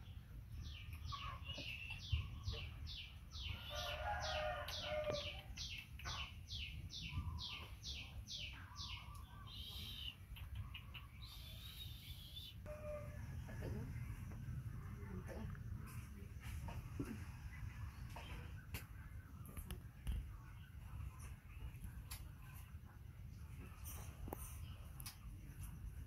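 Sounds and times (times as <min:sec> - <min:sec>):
bird chirping: 0:00.0 - 0:13.9.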